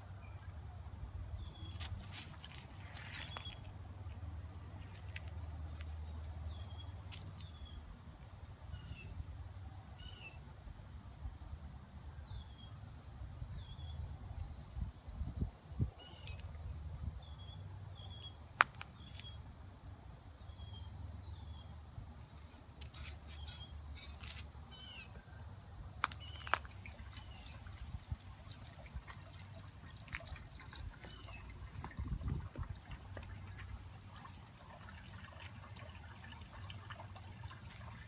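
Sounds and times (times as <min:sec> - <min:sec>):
small birds chirping: 0:15.9 - 0:19.4, 0:26.0 - 0:28.2, 0:29.5 - 0:33.7.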